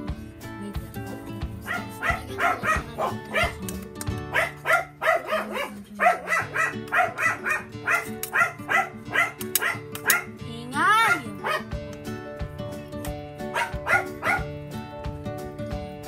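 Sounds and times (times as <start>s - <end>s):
background music: 0.0s - 16.0s
dog barking: 1.6s - 3.6s, 4.3s - 10.4s, 11.0s - 11.7s, 13.5s - 14.5s.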